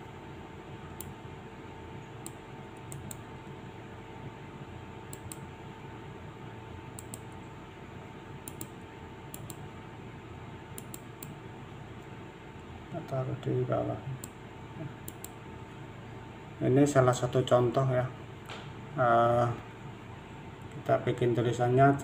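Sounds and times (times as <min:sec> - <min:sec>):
computer hum: 0:00.0 - 0:22.0
computer mouse clicks: 0:01.0 - 0:01.2, 0:02.2 - 0:03.2, 0:05.1 - 0:05.5, 0:07.0 - 0:07.4, 0:08.4 - 0:09.6, 0:10.8 - 0:11.4, 0:15.0 - 0:15.4.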